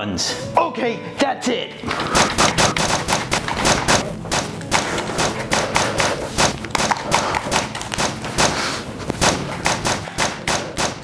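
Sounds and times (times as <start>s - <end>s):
rapid gunshots: 2.0s - 11.0s.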